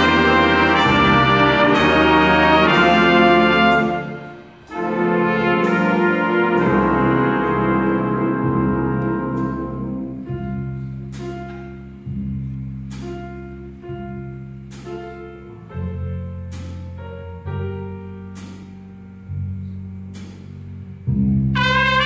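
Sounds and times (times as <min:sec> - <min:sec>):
horn section playing loudly: 0:00.0 - 0:10.3, 0:21.5 - 0:22.0
held bass notes: 0:00.0 - 0:22.0
piano chords: 0:00.0 - 0:22.0.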